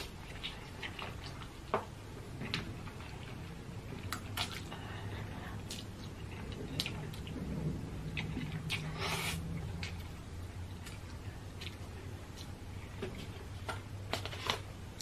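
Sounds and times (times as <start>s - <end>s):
person slurping and chewing noodles: 8.1s - 10.2s.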